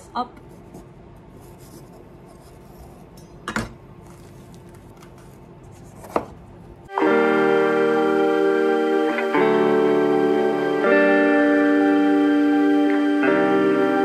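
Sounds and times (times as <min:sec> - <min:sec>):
music: 0:06.9 - 0:14.0.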